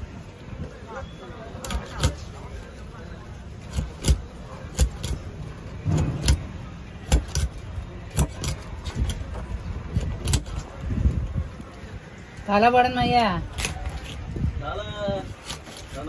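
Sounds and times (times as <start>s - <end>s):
knife cutting fish on wooden board: 3.7s - 5.3s, 7.0s - 9.4s.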